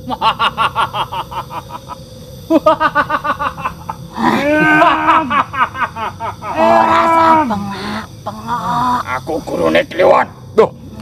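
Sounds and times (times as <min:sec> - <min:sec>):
person laughing: 0:02.5 - 0:06.8.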